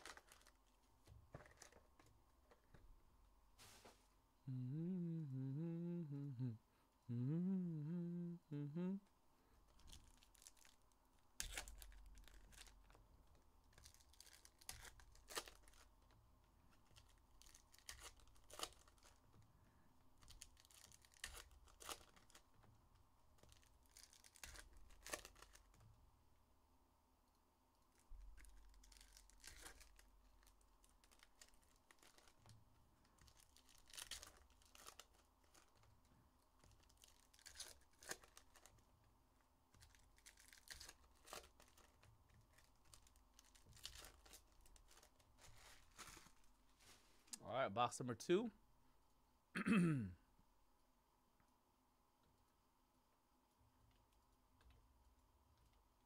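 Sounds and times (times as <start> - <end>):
wrappers tearing and crinkling: 0.0 - 0.7, 9.8 - 13.0, 13.7 - 16.0, 16.7 - 19.2, 20.2 - 22.4, 23.4 - 25.8, 27.9 - 32.5, 33.1 - 35.9, 36.6 - 38.8, 39.8 - 46.5.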